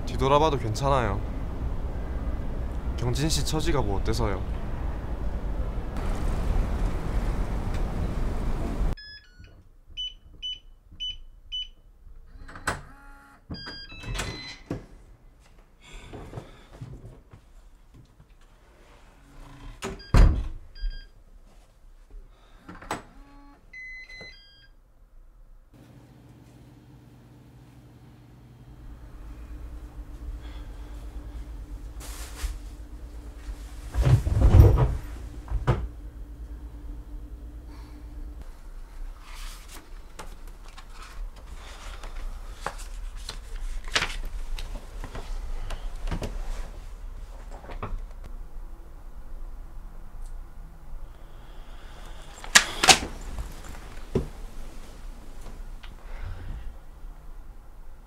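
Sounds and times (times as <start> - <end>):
low steady hum: 25.5 - 58.0
paper and bedding rustling: 30.8 - 35.4, 38.9 - 45.6
door shutting with heavy thud: 33.9 - 35.9.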